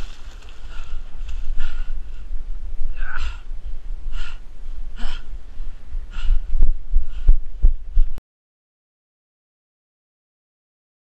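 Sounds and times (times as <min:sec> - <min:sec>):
runner heavy breathing: 0:00.0 - 0:08.2
wind rumbling on microphone: 0:00.0 - 0:08.2.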